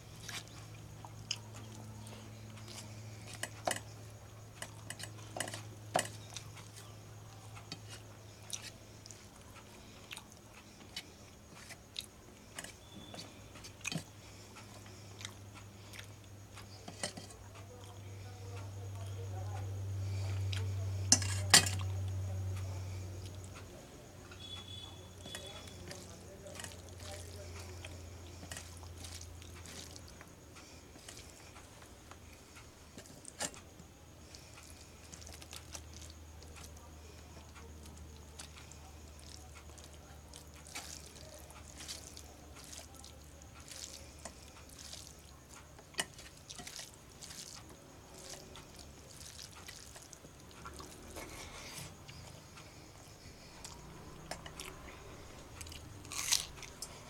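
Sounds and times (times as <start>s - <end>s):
low steady hum: 0.0s - 57.0s
fingers squishing food: 24.3s - 57.0s
chewing and lip smacks: 25.2s - 57.0s.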